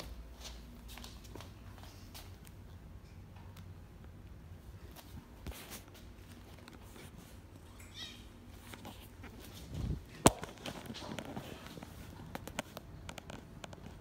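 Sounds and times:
kittens tapping and scuffing floor: 8.6 - 14.0.

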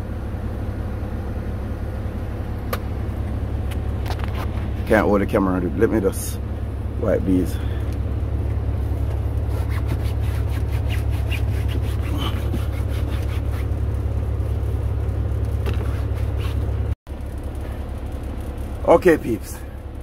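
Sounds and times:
steady low hum: 0.0 - 20.0
cloth rubbing on plastic: 9.5 - 13.8, 15.7 - 16.7.

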